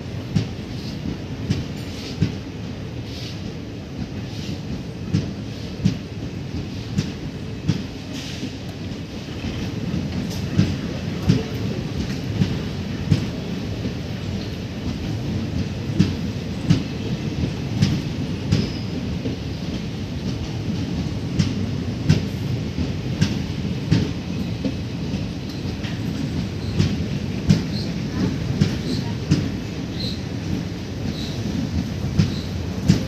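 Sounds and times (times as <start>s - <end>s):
train coaches rumbling: 0.0s - 33.0s
wheels clacking over rail joints: 6.6s - 33.0s.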